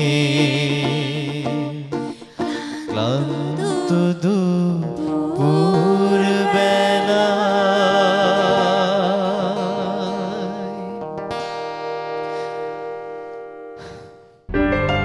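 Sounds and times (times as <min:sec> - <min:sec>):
man and woman singing together: 0:00.0 - 0:11.0.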